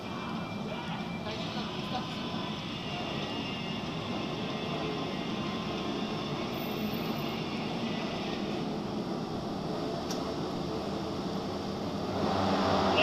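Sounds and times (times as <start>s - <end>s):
distant motorcycle engines droning: 9.5s - 13.0s.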